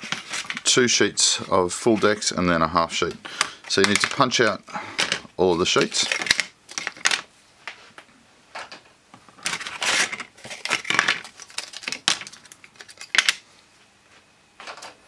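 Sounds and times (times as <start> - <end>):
wooden parts clacking and scraping: 0.0 - 0.8, 3.0 - 7.3, 9.4 - 13.4.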